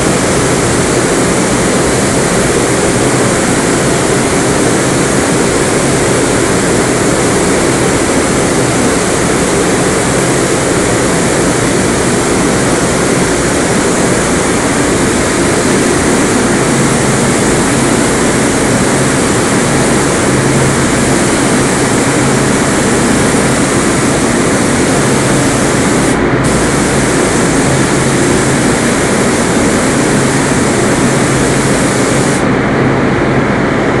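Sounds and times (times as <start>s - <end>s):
paint spray gun hissing: 0.0s - 32.5s
low drone: 10.2s - 33.7s.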